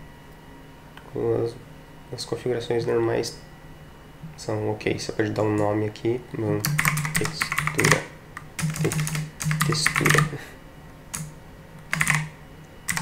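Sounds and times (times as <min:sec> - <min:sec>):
keyboard typing: 0:06.6 - 0:10.4, 0:11.1 - 0:13.0.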